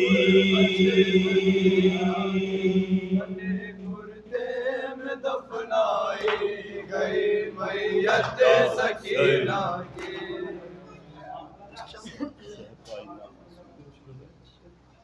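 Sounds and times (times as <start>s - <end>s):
men chanting a lament: 0.0s - 11.1s.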